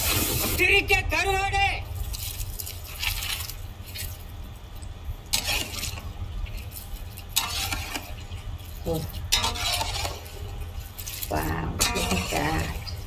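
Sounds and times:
low steady hum: 0:00.0 - 0:13.0
ladle scraping and clinking pot: 0:05.3 - 0:13.0.

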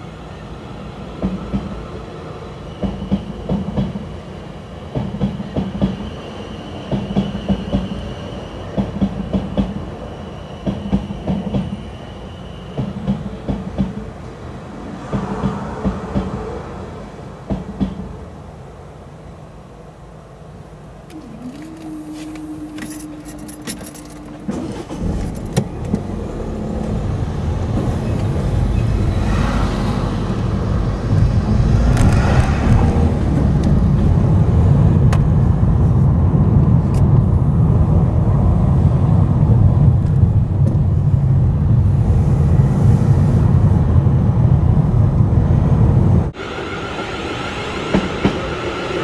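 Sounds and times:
car engine and tyre rumble: 0:20.0 - 0:46.4.

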